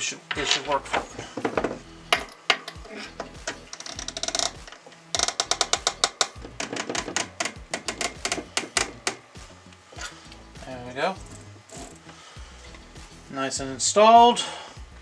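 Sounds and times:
metal clicks: 0.3 - 10.4
ratcheting clicks: 0.3 - 10.5, 11.2 - 12.8.

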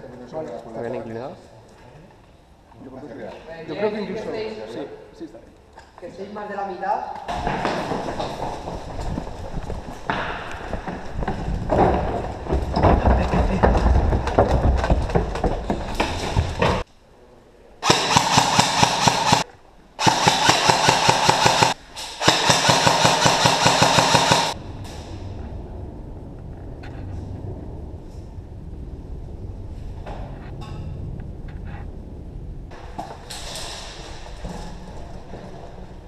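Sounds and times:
running footsteps: 7.3 - 16.9
airsoft rifle full-auto bursts: 17.8 - 19.4, 20.0 - 24.6.

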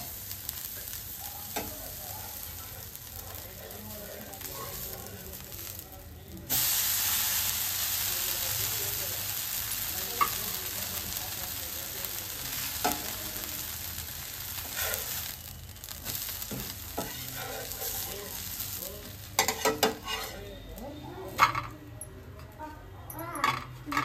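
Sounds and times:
food sizzling on hot pan: 0.0 - 21.7
metal spatula scraping pan: 14.6 - 15.2, 17.0 - 18.1, 19.4 - 20.4.

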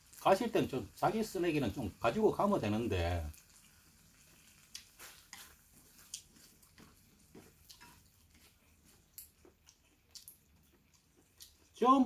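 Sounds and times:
faint chewing: 3.2 - 11.8.

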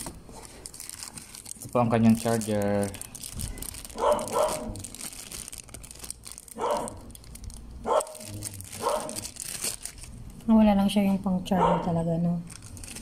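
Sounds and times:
plastic bag crinkling: 0.0 - 10.4, 12.4 - 13.0
loud bark-like sounds: 4.0 - 4.8, 6.6 - 7.1, 7.8 - 9.2, 11.6 - 12.0.

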